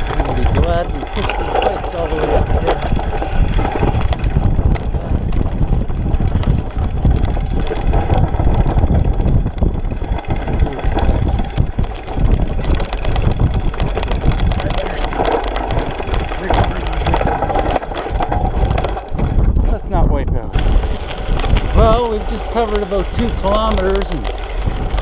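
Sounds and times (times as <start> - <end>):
bike rolling on gravel: 0.0 - 25.0
wind buffeting microphone: 0.0 - 25.0
tyres clicking on stones: 9.6 - 19.5, 20.6 - 25.0.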